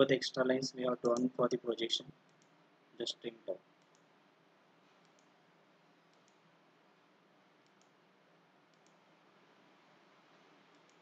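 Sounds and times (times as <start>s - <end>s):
faint computer mouse clicks: 2.2s - 2.6s, 3.8s - 4.1s, 5.0s - 5.3s, 6.1s - 6.4s, 7.6s - 8.0s, 8.7s - 9.0s, 10.7s - 11.0s.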